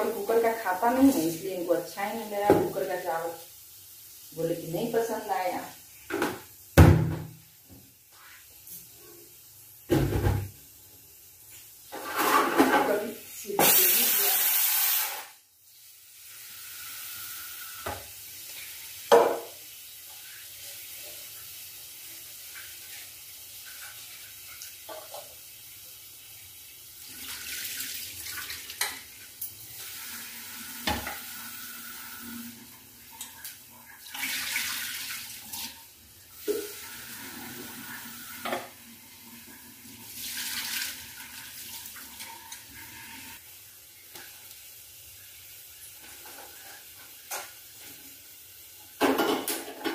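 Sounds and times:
cookware knocking and clinking: 19.1 - 19.5, 49.0 - 49.9.

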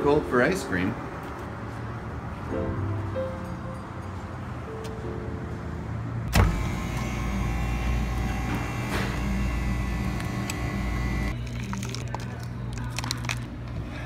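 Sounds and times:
machine motor humming: 6.3 - 12.0.

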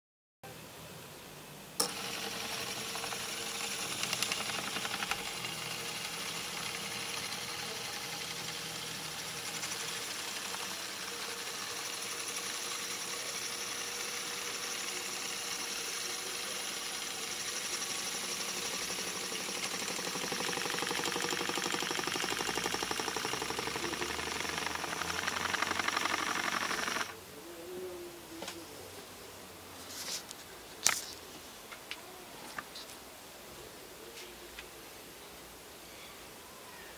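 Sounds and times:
motor switch click: 1.8 - 2.5
stepper motor whirring: 1.8 - 27.2.

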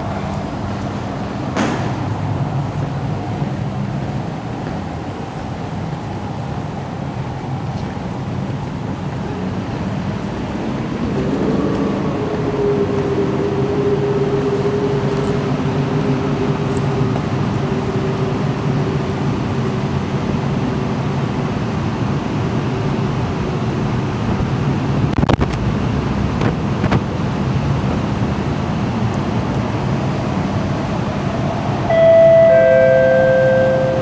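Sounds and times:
low rumble on underground platform: 0.0 - 34.0
two-note public-address chime: 31.9 - 34.0.

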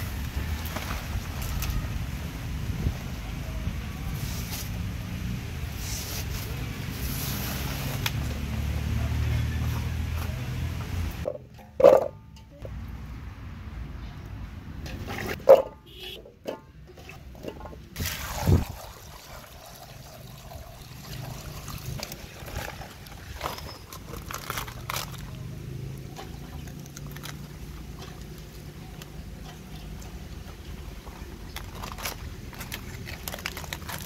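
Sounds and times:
leaves rustling and crackling: 0.0 - 10.4, 21.8 - 34.0.

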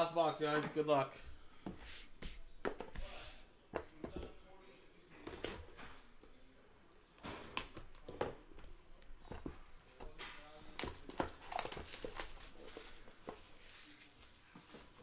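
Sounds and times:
hands handling cardboard box: 7.4 - 15.0
plastic wrapper crinkling: 10.7 - 15.0.

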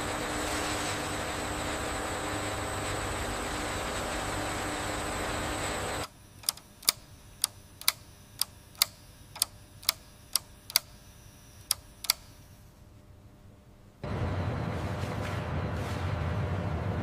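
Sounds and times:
clock ticking: 6.4 - 10.9.

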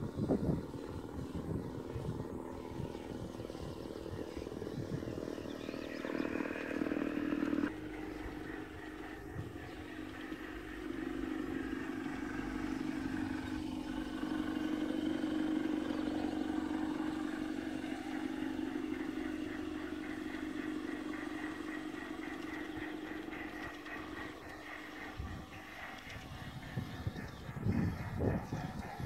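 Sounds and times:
model train motor hum: 0.0 - 29.0
light rhythmic clicking: 6.3 - 29.0.

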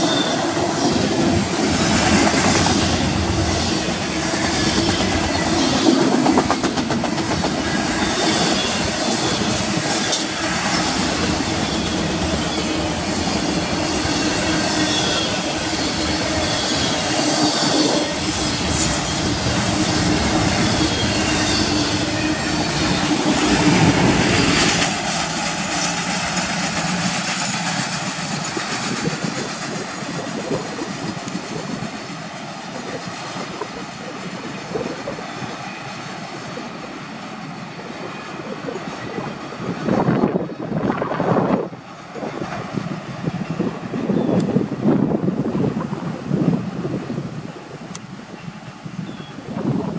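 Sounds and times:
train wheels clattering on rails: 0.0 - 45.0
wind gusts on microphone: 0.0 - 49.9
wheels squealing: 7.6 - 26.2.

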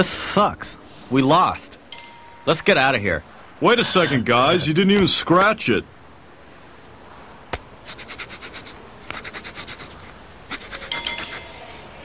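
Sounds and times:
coin scratching lottery ticket: 7.8 - 11.6.

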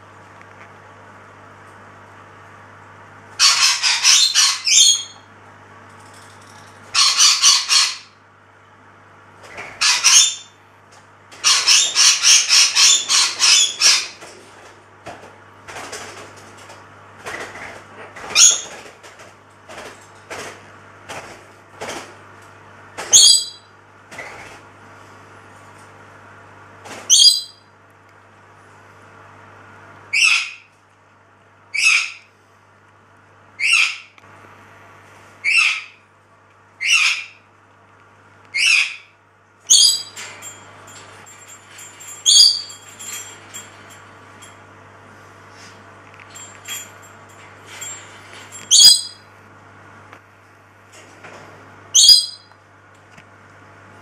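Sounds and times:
bird rattling calls: 3.4 - 5.2, 6.4 - 8.1, 9.5 - 10.5, 11.4 - 14.2, 17.3 - 18.9, 39.7 - 44.0, 47.7 - 49.2
bird chirps: 42.3 - 42.7, 48.7 - 49.2, 52.0 - 52.5.

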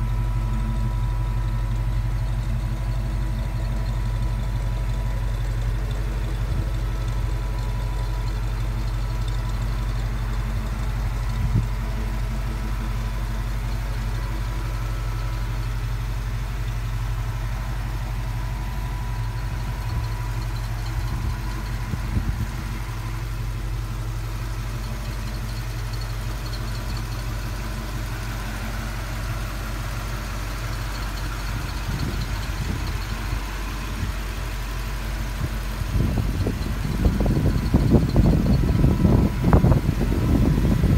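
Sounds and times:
pickup engine idling: 0.0 - 40.9.

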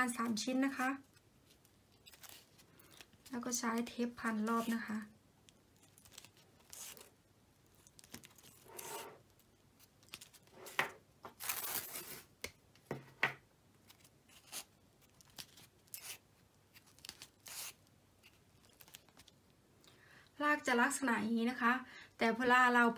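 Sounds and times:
tape tearing and crinkling: 1.1 - 3.4, 5.8 - 7.1, 7.8 - 10.6, 11.3 - 12.3, 13.8 - 19.4.

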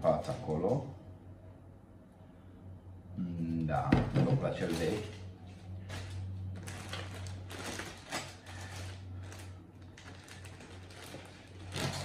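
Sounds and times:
steady low hum: 0.0 - 12.0
plastic bags rustling: 4.3 - 12.0.

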